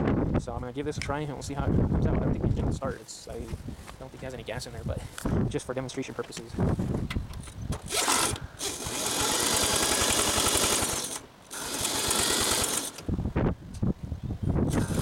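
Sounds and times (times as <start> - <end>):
engine turning over chugging: 7.8 - 13.1
cordless drill motor whine: 7.9 - 13.1, 14.7 - 15.0.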